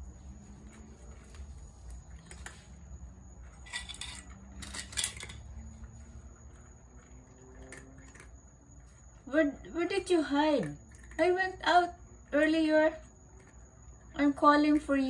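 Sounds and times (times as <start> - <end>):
cat crunching dry kibble: 0.0 - 9.0, 10.6 - 14.1
kibble scraping against metal: 0.0 - 9.2.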